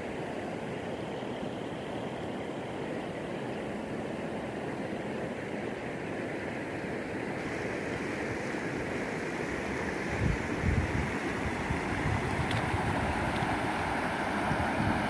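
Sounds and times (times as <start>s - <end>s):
rushing floodwater: 0.0s - 15.0s.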